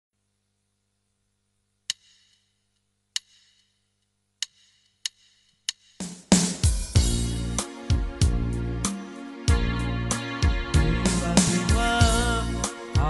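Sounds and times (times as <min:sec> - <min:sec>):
band playing loudly: 0:09.5 - 0:13.0.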